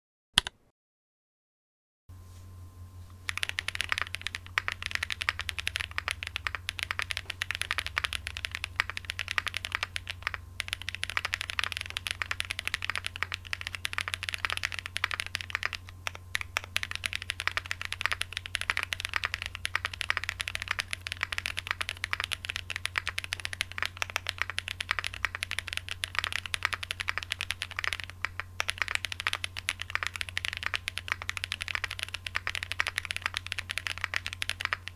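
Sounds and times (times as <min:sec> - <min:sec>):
steady low hum: 0:02.1 - 0:34.9
mechanical keyboard typing: 0:03.3 - 0:34.9.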